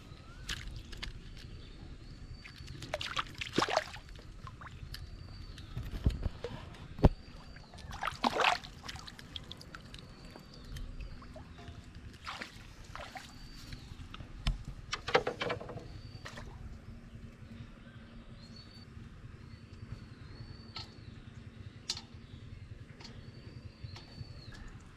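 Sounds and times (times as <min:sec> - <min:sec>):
fish thrashing and splashing water: 0:02.4 - 0:04.8, 0:07.6 - 0:10.5, 0:12.1 - 0:13.5.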